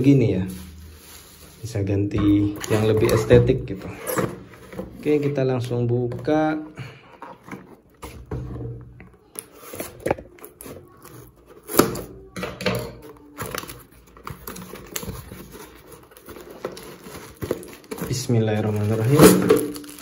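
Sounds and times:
cardboard rustling and scraping: 0:13.3 - 0:20.0.

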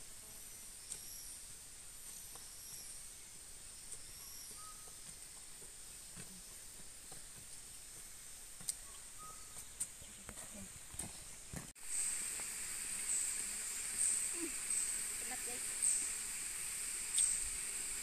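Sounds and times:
insects droning: 0:00.0 - 0:18.0
short whistled bird calls: 0:03.9 - 0:05.0, 0:08.8 - 0:09.6, 0:17.1 - 0:17.5.

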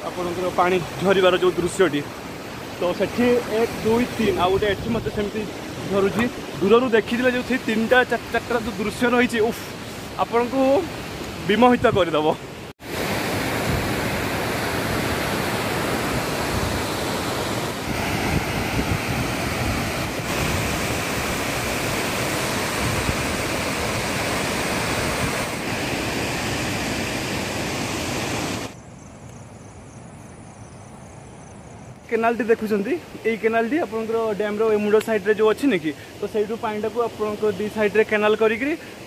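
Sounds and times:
water rushing over dam spillway: 0:00.0 - 0:28.8.

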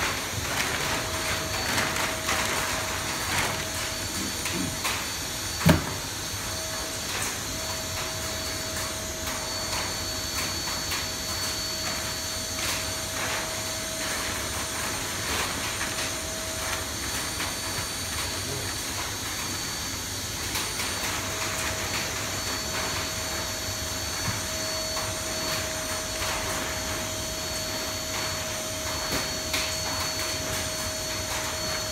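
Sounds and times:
vacuum cleaner whining: 0:00.0 - 0:31.9
foil bag crackling: 0:00.2 - 0:04.7.

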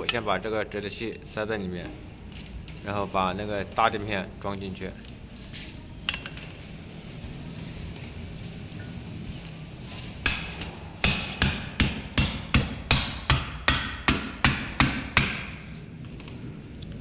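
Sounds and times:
hammer striking metal rod: 0:10.2 - 0:15.6.

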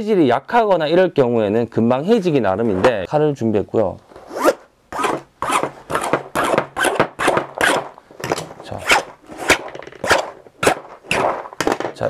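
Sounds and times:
knife blade scraping fabric: 0:04.2 - 0:07.9, 0:08.7 - 0:11.6.

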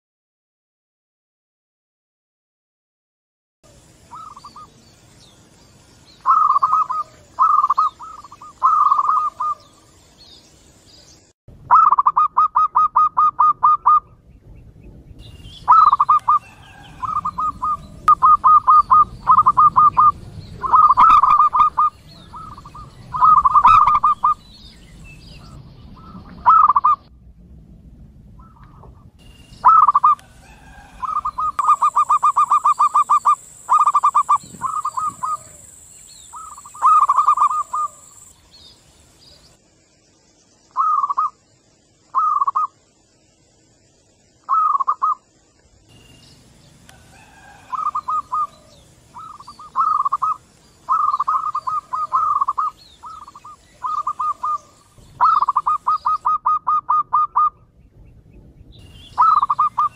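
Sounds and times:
doves cooing: 0:06.2 - 0:09.8, 0:11.7 - 0:14.2, 0:15.7 - 0:24.5, 0:25.3 - 0:27.0, 0:29.6 - 0:38.3, 0:42.1 - 0:42.8, 0:46.9 - 0:57.7, 0:59.2 - 0:59.9.

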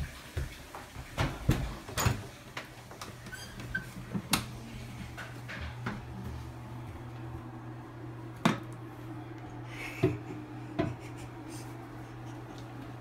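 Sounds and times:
steady low hum: 0:04.0 - 0:13.0.

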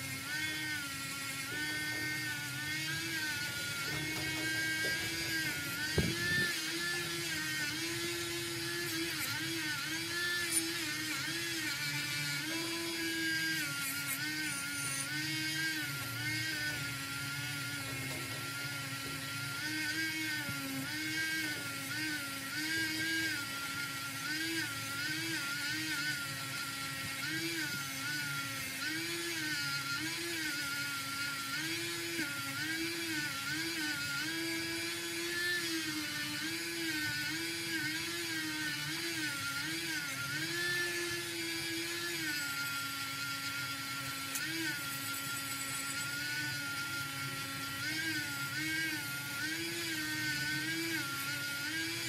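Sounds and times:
rotary tool wire brush on metal: 0:00.0 - 0:52.0.

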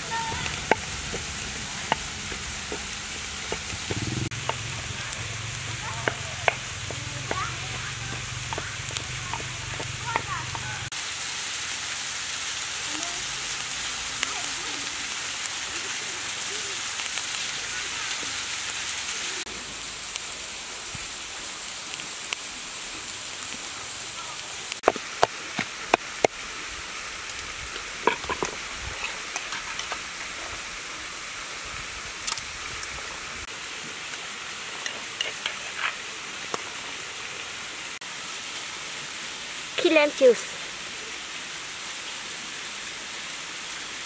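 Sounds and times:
charcoal grill sizzling: 0:00.0 - 0:44.0
waterfall rushing: 0:00.0 - 0:44.0.

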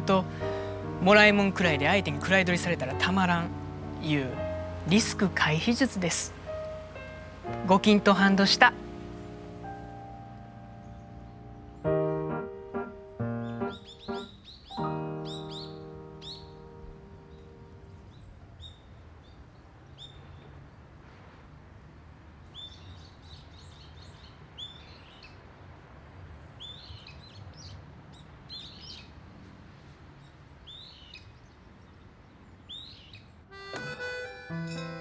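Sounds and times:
plucked instrumental music: 0:00.0 - 0:17.9, 0:33.5 - 0:35.0
low outdoor ambience: 0:00.0 - 0:35.0
small birds chirping: 0:01.6 - 0:20.8, 0:22.5 - 0:29.3, 0:30.1 - 0:35.0.

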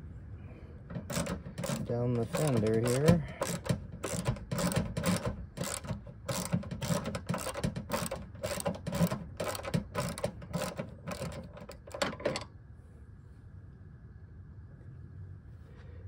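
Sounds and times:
ratchet clicking: 0:00.9 - 0:12.5.

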